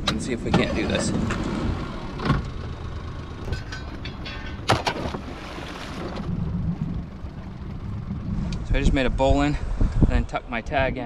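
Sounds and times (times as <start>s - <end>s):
wind rumble on microphone: 5.9s - 11.0s.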